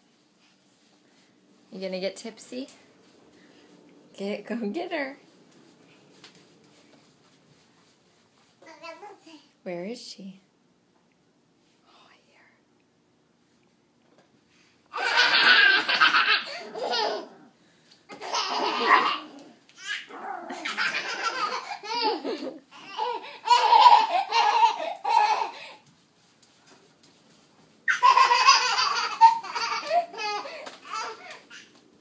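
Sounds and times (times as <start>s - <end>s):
small child laughing: 14.9s - 17.4s, 18.1s - 25.6s, 27.9s - 31.7s.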